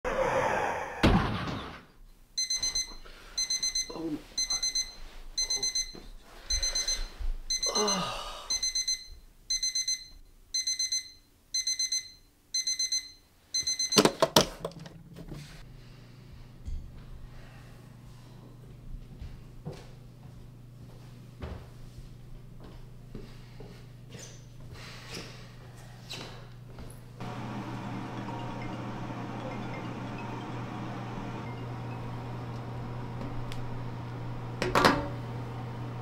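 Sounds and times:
alarm clock beeping: 2.4s - 14.1s, 27.2s - 32.6s.

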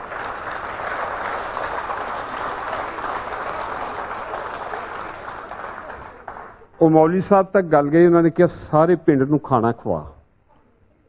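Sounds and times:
audience applauding: 0.0s - 6.8s.

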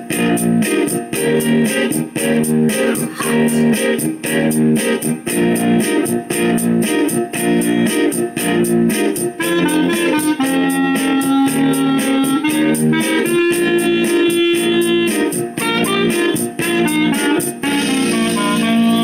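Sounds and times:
blues guitar: 0.0s - 19.0s
clarinet melody: 7.3s - 8.2s, 9.2s - 19.0s.

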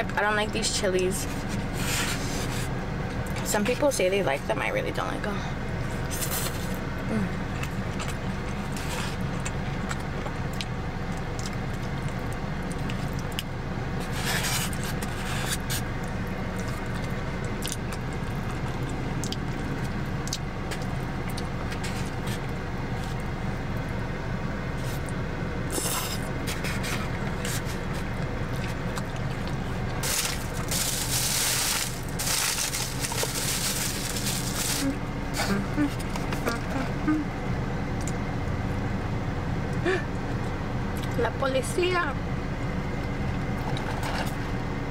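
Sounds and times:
steady low hum: 0.0s - 44.9s
chewing: 7.5s - 23.9s, 24.8s - 36.9s.

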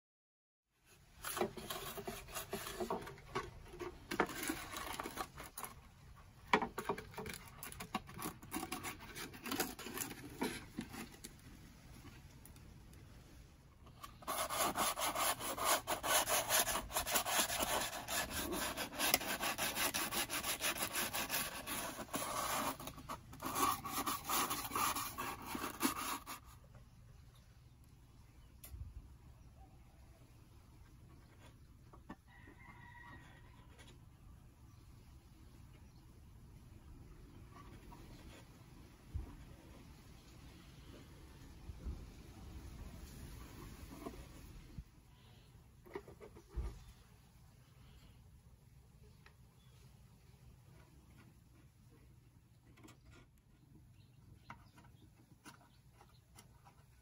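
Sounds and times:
rasping on wood: 14.2s - 26.4s.

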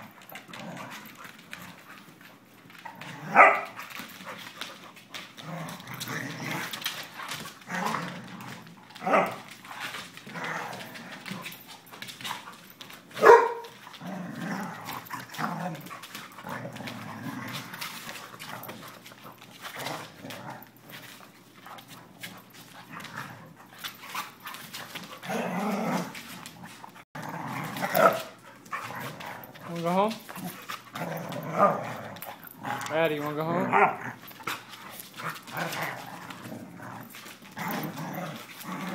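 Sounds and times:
dogs growling: 0.0s - 38.9s
dog barking sharply: 13.2s - 13.6s.

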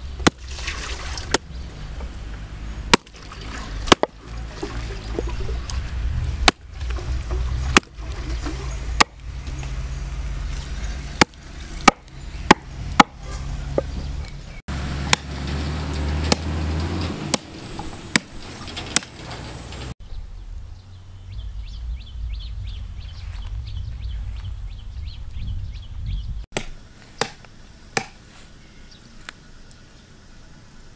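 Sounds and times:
hatchet chopping on wooden block: 3.9s - 4.2s, 11.2s - 13.2s, 26.6s - 27.4s, 28.0s - 28.2s.

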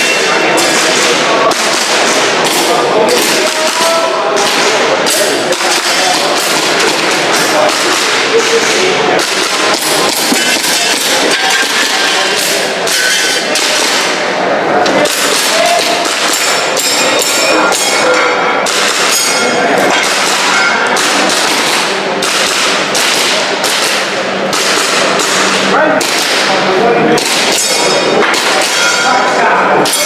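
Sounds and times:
voices: 0.0s - 30.0s
airsoft pistol shots: 20.0s - 26.4s.

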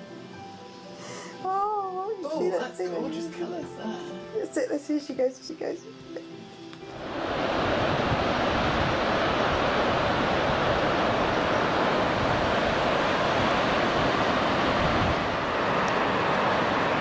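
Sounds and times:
sea surf: 6.9s - 17.0s
wind: 6.9s - 17.0s.

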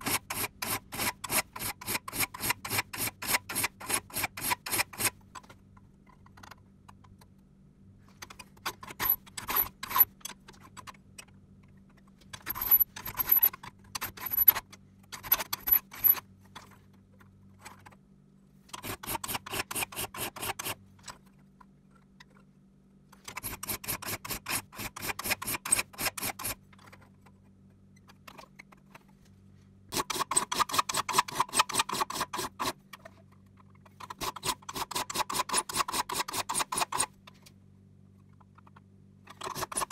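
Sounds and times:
file scraping saw teeth: 0.0s - 5.2s, 8.8s - 10.1s, 15.2s - 16.2s, 18.7s - 20.8s, 23.3s - 26.6s, 29.9s - 32.8s, 34.0s - 37.2s, 39.3s - 39.9s.

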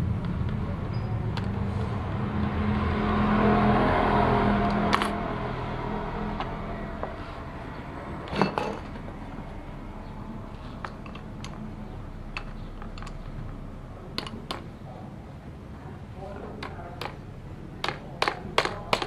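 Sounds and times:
low steady hum: 0.0s - 19.0s
metal tools clinking: 8.3s - 9.0s.

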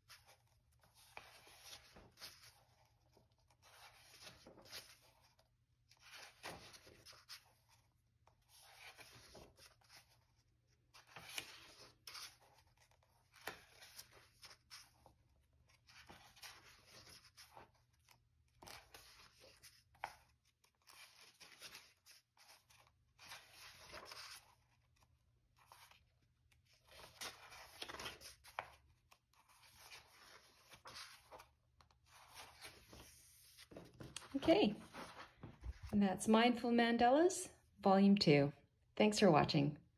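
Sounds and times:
paper pages turning: 0.0s - 36.0s.

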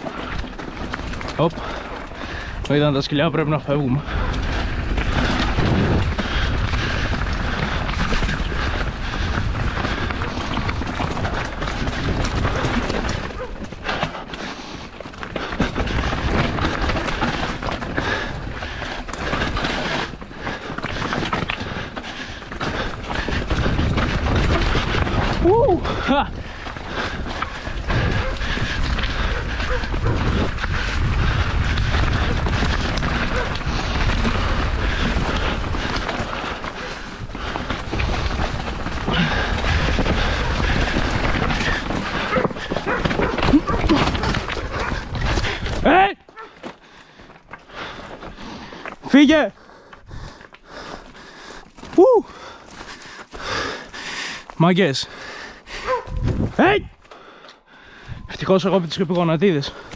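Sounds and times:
bike rattling: 0.0s - 59.9s
tyres crunching over stones: 0.0s - 59.9s
wind rushing on microphone: 4.0s - 12.8s, 23.2s - 36.2s, 56.0s - 57.0s, 58.1s - 58.4s.

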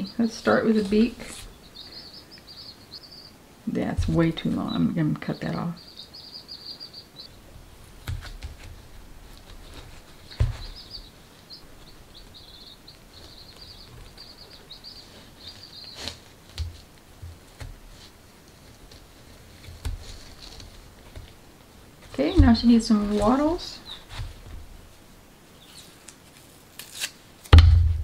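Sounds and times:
baby chicks peeping: 0.0s - 26.2s
cardboard and tape clicks: 26.0s - 27.6s.

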